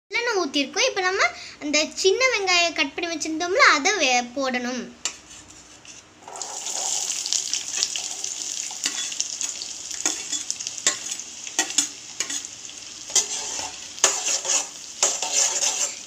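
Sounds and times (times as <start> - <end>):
shallots sizzling in hot oil: 6.2 - 16.0.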